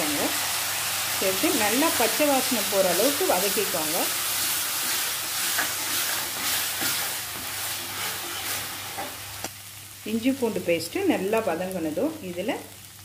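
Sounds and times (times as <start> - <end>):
onions sizzling in hot oil: 0.0 - 13.0
ladle scraping pan: 4.8 - 9.2.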